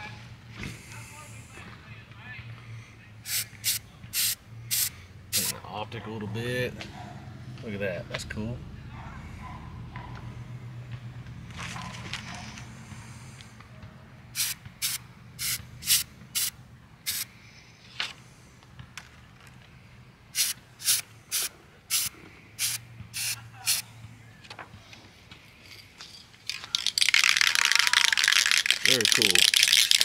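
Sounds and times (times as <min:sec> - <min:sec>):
spray can hissing: 0:03.3 - 0:05.5, 0:14.4 - 0:16.5, 0:17.1 - 0:17.3, 0:20.4 - 0:23.8.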